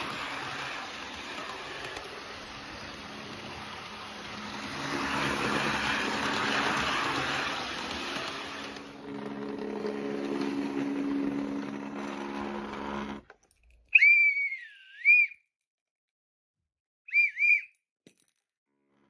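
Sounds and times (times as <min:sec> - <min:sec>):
model train motor hum: 0:00.0 - 0:13.3
high whistle: 0:13.9 - 0:15.5, 0:17.1 - 0:17.8.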